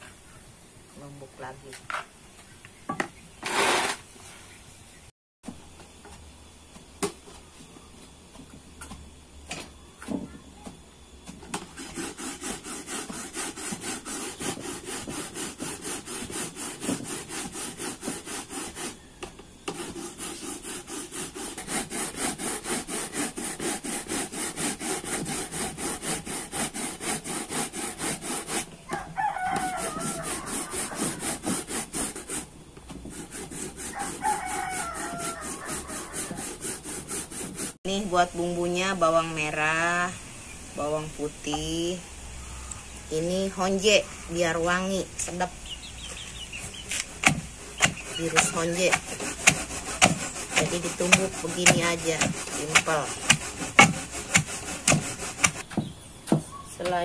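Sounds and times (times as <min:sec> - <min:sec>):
coconut rasping on metal grater: 0:03.4 - 0:04.0, 0:11.6 - 0:28.7, 0:29.5 - 0:32.5, 0:33.1 - 0:37.8, 0:46.9 - 0:55.7
rooster crowing: 0:28.9 - 0:31.4, 0:33.8 - 0:36.6.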